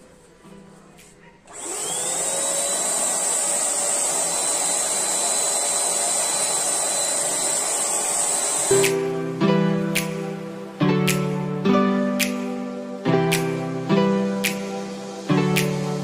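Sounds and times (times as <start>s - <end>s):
blower motor whining: 1.5s - 8.8s.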